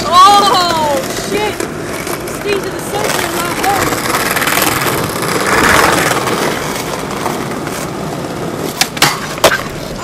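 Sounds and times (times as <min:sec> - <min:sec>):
skateboard clacks: 0:00.0 - 0:10.0
skateboard wheels rolling on asphalt: 0:00.0 - 0:10.0.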